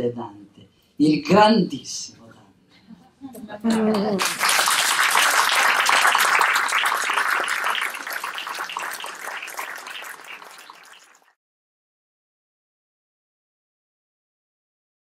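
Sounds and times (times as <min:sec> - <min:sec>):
audience applauding: 0:03.7 - 0:11.4.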